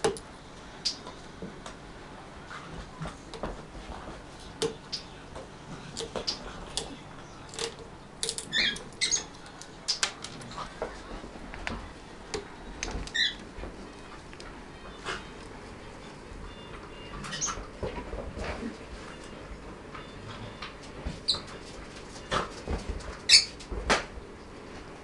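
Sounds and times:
parrot squeaks: 8.5s - 9.3s, 13.1s - 13.4s, 16.5s - 17.6s, 23.3s - 23.6s.

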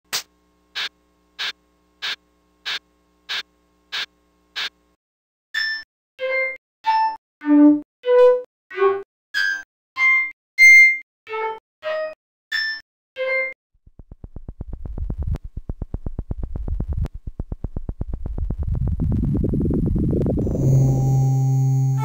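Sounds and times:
buzzing stream of clicks: 0.1s - 4.8s, 14.0s - 20.7s
electronic pitched blips: 13.9s - 22.0s.

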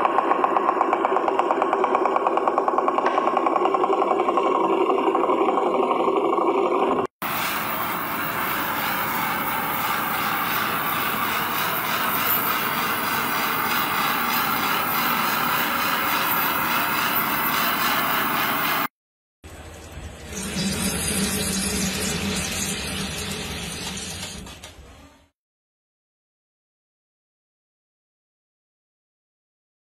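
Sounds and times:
spinning wheel whirring: 0.0s - 18.9s
welding torch hissing: 7.2s - 18.9s.

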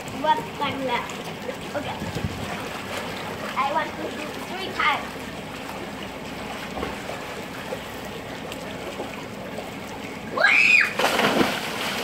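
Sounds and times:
pool water washing against edge: 0.0s - 12.0s
child shouting: 10.4s - 11.0s
water splash: 10.4s - 12.0s.

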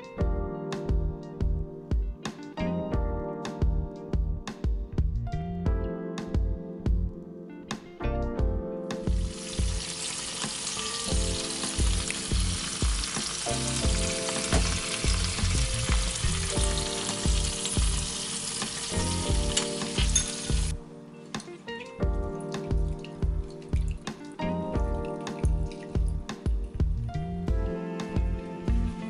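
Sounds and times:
background music with a beat: 0.0s - 29.0s
fat sizzling in oven: 9.1s - 20.8s.

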